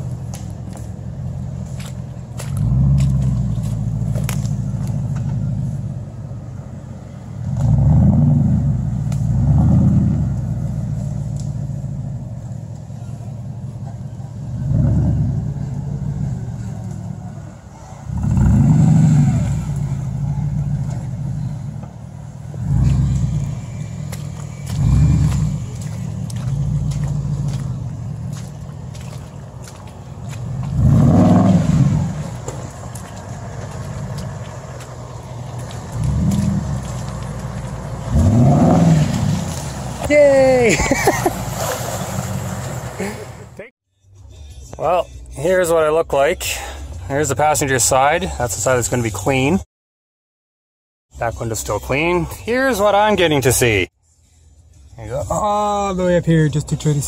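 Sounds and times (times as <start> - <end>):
truck engine revving: 0.0 - 43.7.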